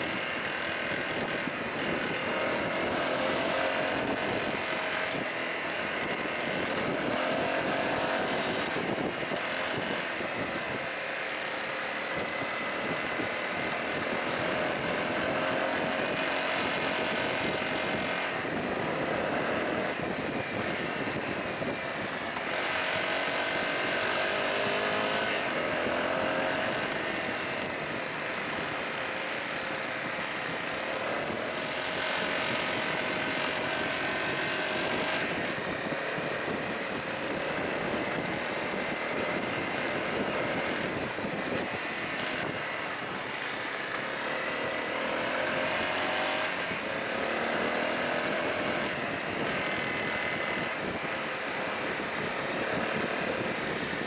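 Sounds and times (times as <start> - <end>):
motorcycle engine revving: 0.0 - 54.0
wind and road noise: 0.0 - 54.0.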